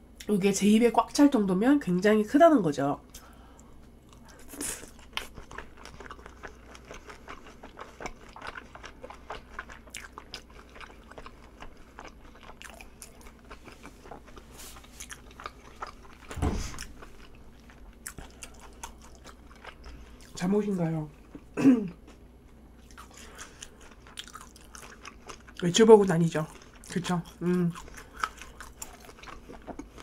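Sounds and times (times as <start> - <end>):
chewing fried shrimp: 3.1 - 30.0
low thump: 16.3 - 16.8.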